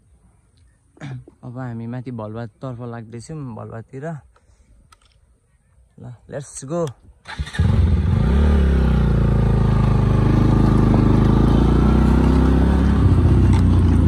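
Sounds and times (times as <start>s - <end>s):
motorcycle engine pulling away: 7.3s - 14.0s.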